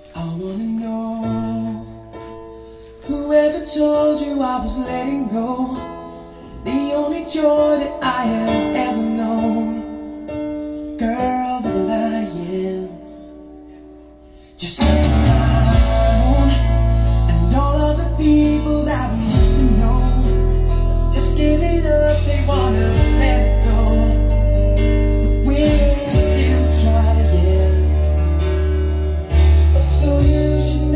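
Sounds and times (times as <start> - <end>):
deep held bass notes: 14.8 - 30.9
plucked guitar: 14.8 - 30.9.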